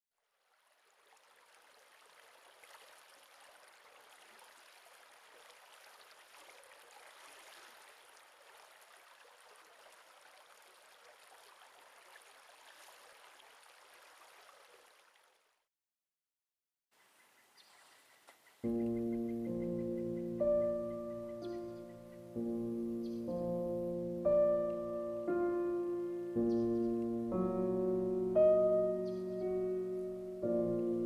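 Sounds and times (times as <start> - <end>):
running water rushing: 0.4 - 15.5.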